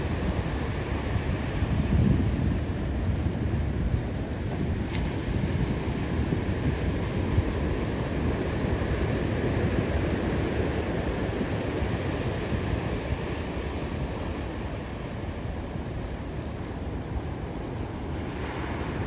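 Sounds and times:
ocean surf breaking: 0:00.0 - 0:19.0
wind buffeting microphone: 0:00.0 - 0:19.0.

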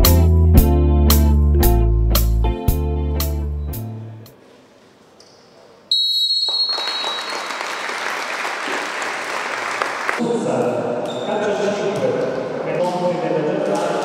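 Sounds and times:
guitar music: 0:00.0 - 0:04.3
applause in a hall: 0:06.4 - 0:10.2.

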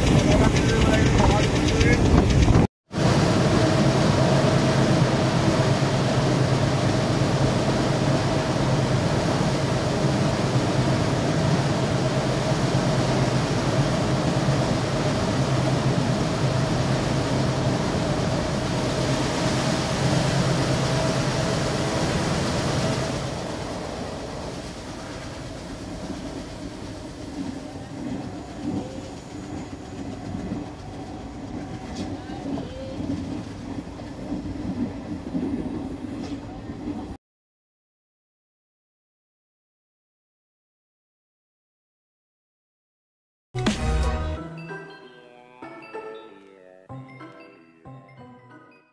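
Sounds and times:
train wheels rattling on track: 0:00.0 - 0:02.7, 0:23.3 - 0:37.2
train rumble in tunnel: 0:00.0 - 0:37.2.

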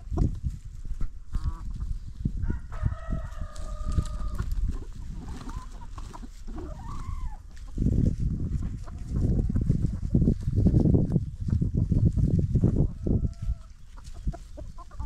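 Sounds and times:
chickens clucking: 0:00.0 - 0:15.0
rooster crowing: 0:02.4 - 0:04.3.

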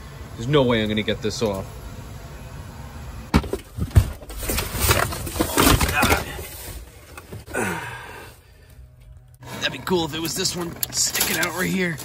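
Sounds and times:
tools clattering and rustling: 0:03.4 - 0:07.5, 0:09.8 - 0:12.0.

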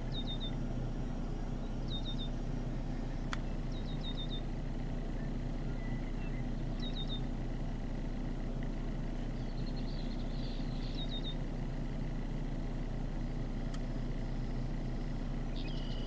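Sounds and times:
bird chirping: 0:00.0 - 0:00.6, 0:01.4 - 0:07.3, 0:09.3 - 0:11.5, 0:15.4 - 0:16.0
vehicle engine idling: 0:00.0 - 0:16.0.

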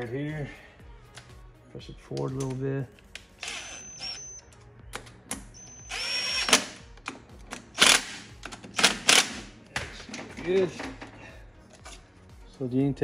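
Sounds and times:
cordless power driver running: 0:05.9 - 0:06.6.

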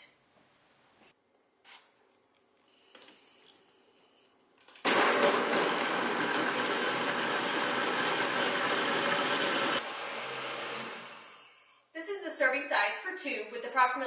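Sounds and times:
blender running: 0:04.8 - 0:11.6.

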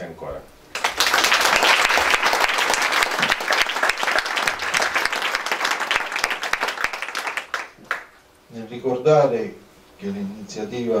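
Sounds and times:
audience applauding: 0:00.7 - 0:08.2.

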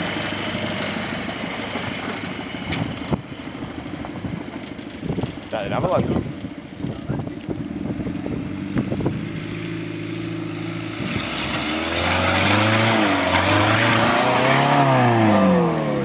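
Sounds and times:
engine revving under load: 0:07.9 - 0:16.0.

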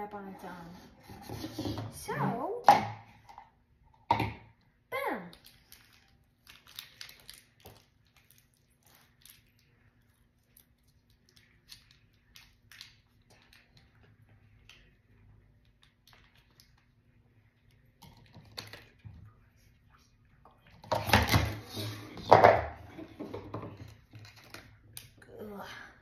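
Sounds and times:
plastic packet crinkling: 0:05.4 - 0:09.8.

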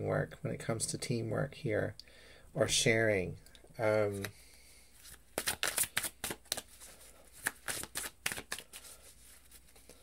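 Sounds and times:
cards being shuffled: 0:04.1 - 0:04.4, 0:05.0 - 0:10.0.

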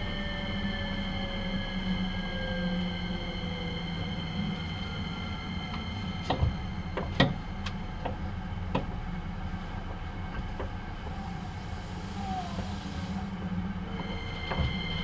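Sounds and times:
train wheels rumbling on track: 0:00.0 - 0:15.0
high whine: 0:10.9 - 0:15.0.

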